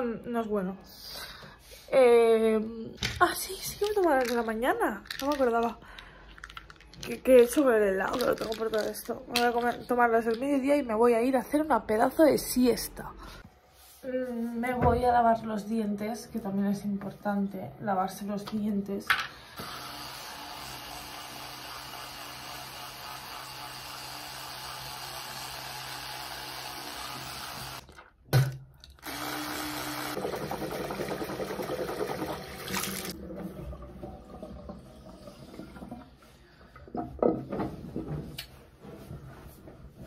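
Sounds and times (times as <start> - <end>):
electric toothbrush buzzing: 19.6 - 27.8, 29.0 - 30.2.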